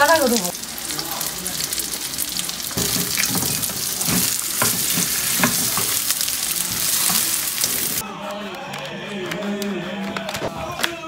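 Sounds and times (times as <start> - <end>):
batter sizzling in oil: 0.0 - 8.0
spatula scraping a pan: 2.8 - 8.0.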